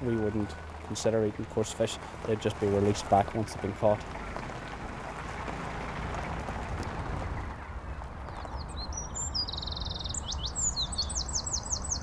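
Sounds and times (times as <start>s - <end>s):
tyres crunching on gravel: 0.0s - 9.1s
songbird singing: 6.2s - 12.0s.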